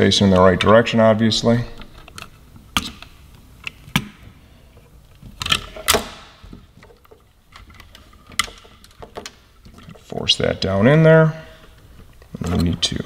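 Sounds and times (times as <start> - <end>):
plastic and metal parts clicking: 5.2 - 10.1.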